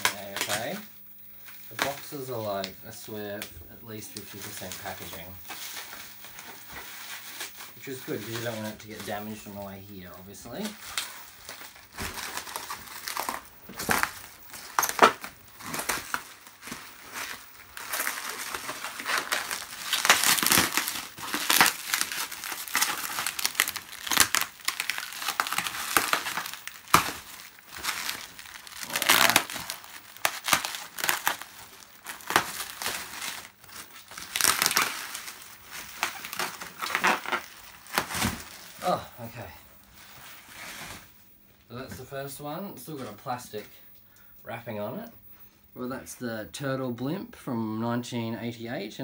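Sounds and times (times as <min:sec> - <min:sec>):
plastic wrapping crinkling: 0:00.0 - 0:41.1
packing peanuts shifting: 0:07.8 - 0:39.0.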